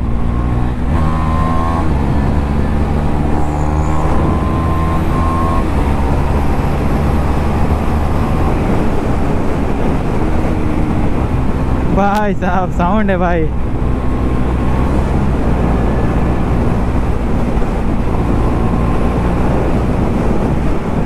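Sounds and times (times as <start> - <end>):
motorcycle engine accelerating: 0.0 - 12.0, 13.5 - 21.0
wind rush: 0.0 - 21.0.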